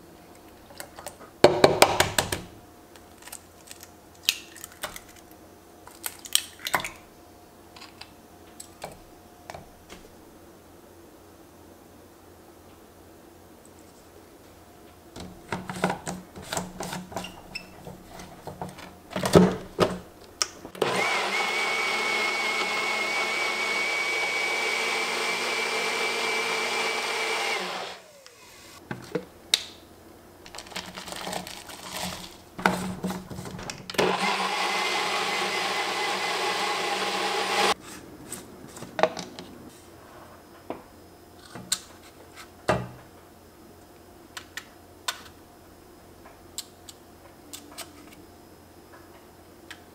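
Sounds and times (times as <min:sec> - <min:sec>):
blender motor whining: 0:20.8 - 0:28.8, 0:34.0 - 0:37.8.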